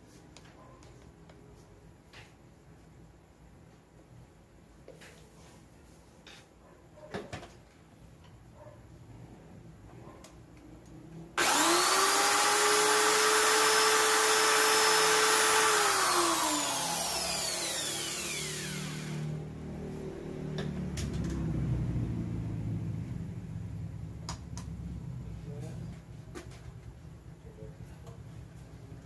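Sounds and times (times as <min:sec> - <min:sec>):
cordless drill motor whine: 0:11.4 - 0:19.4.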